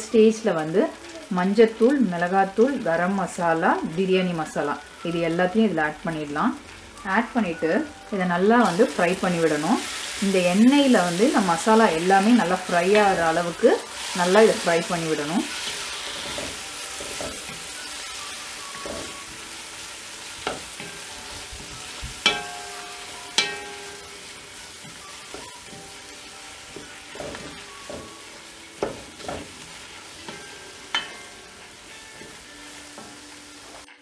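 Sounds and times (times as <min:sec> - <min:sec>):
masala sizzling in oil: 0:00.0 - 0:34.0
spatula scraping pot: 0:26.8 - 0:28.1.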